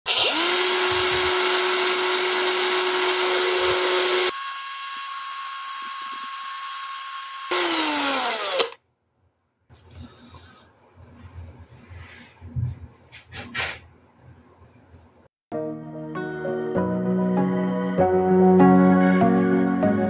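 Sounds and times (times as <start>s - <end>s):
cordless drill motor whine: 0.1s - 8.8s.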